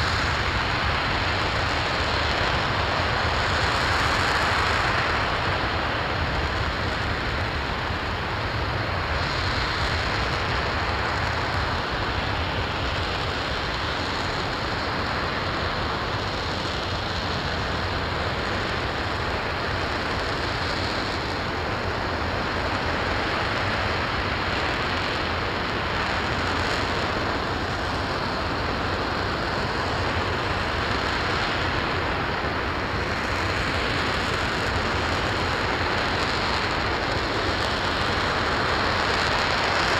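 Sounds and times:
rocket engine firing: 9.0s - 39.9s.

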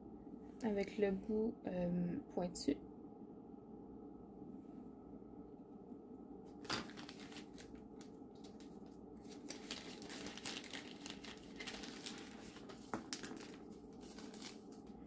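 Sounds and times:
plastic packaging crinkling: 6.6s - 15.0s.

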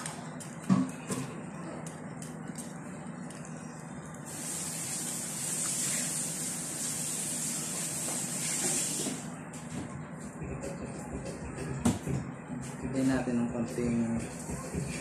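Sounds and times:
steady hiss: 4.3s - 9.2s.

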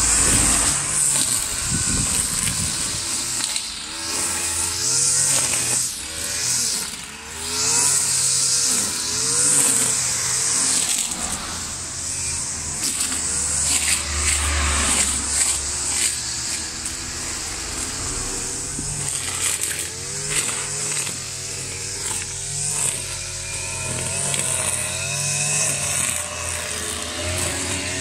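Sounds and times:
brush cutter engine revving: 0.0s - 28.0s
passing vehicle rumble: 11.1s - 20.7s.

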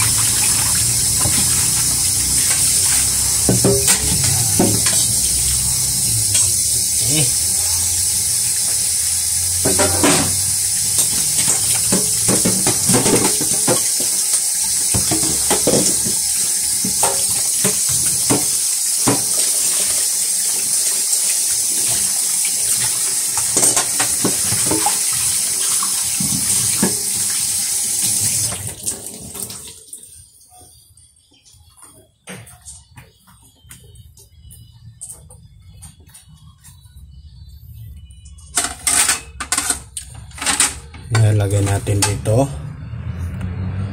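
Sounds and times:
dishes clinking and knocking: 2.4s - 5.2s, 9.6s - 14.3s, 14.9s - 19.4s, 23.4s - 25.0s, 38.5s - 42.2s
tap running into steel sink: 9.6s - 14.2s.

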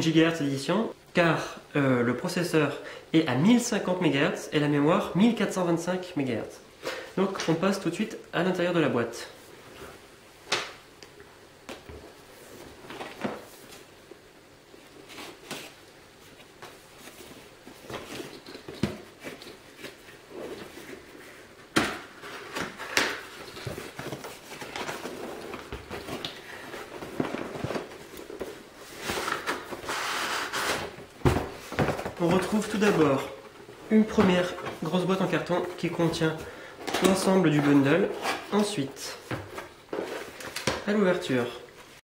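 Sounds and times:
cardboard sleeve scraping: 22.2s - 31.0s.

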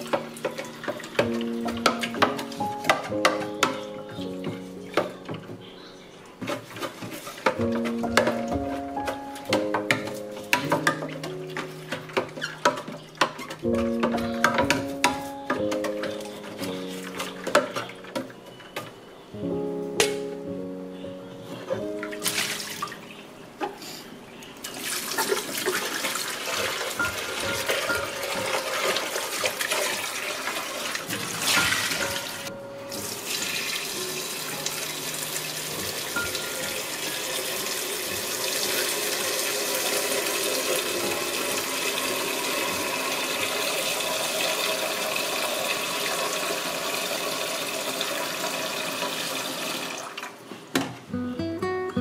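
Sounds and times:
tap water splashing into sink: 22.0s - 23.0s.

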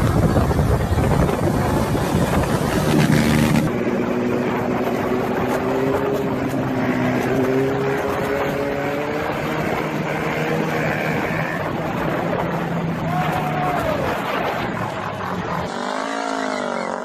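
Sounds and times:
motorcycle engine running: 0.0s - 12.3s
road and wind noise: 0.0s - 17.0s.

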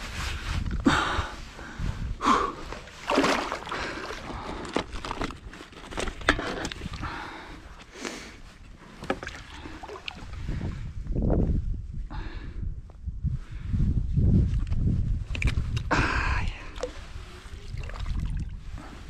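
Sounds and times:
water sloshing and splashing: 2.7s - 7.2s, 8.6s - 10.7s, 16.6s - 18.8s.

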